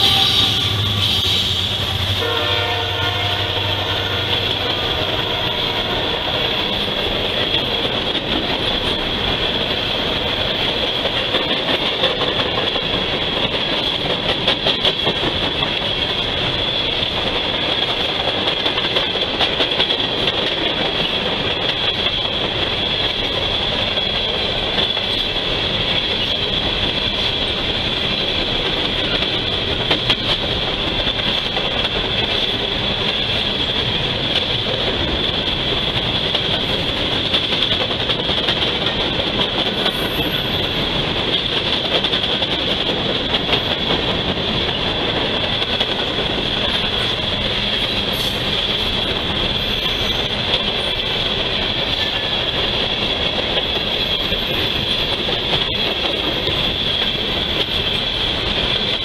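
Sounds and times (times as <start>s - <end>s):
train cars rumbling and rattling: 0.0s - 59.0s
wheels clicking over rail joints: 4.3s - 59.0s.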